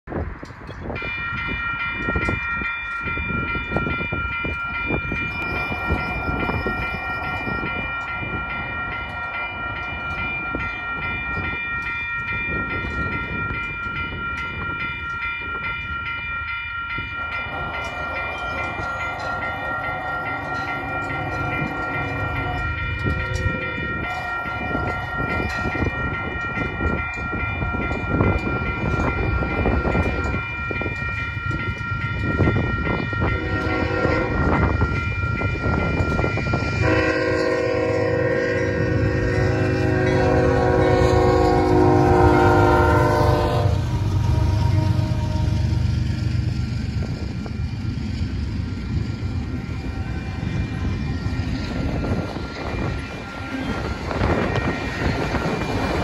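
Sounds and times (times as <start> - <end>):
railroad crossing bell ringing: 0.1 - 56.0
train horn blasts: 33.2 - 34.8, 36.5 - 46.0.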